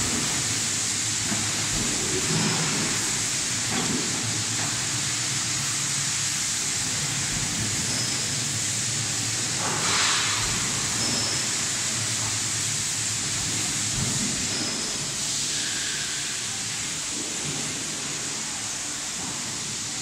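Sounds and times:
machine hiss: 0.0s - 20.0s.

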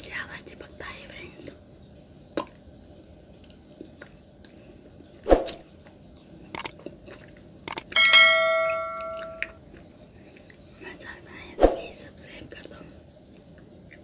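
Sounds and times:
chewing clicks: 5.8s - 7.9s
bell chime: 8.0s - 9.5s.

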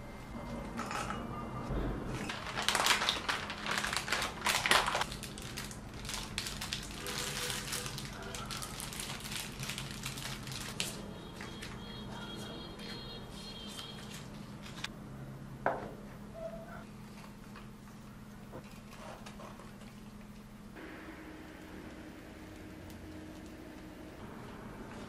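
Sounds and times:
plastic wrappers crinkling: 2.2s - 11.8s.

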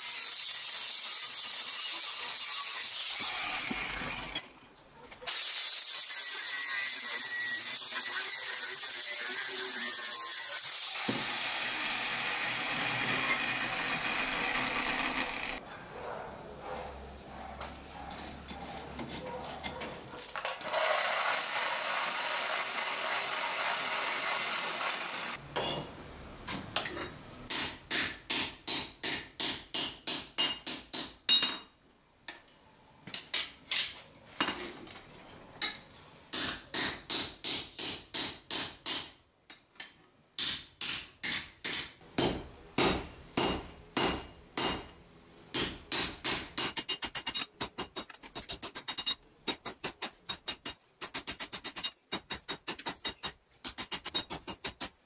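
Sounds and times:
hammer striking steel on anvil: 27.5s - 31.7s, 40.4s - 55.0s.

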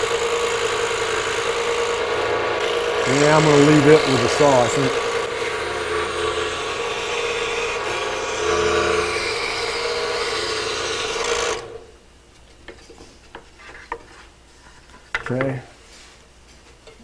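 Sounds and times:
scroll saw cutting wood: 0.0s - 11.8s.

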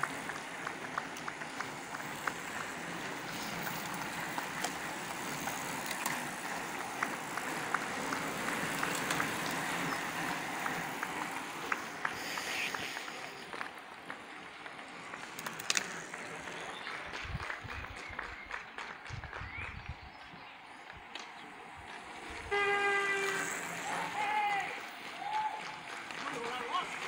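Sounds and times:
tyres hissing on tarmac: 0.0s - 16.8s, 21.5s - 25.0s
bicycle wheels whirring: 0.0s - 27.0s.

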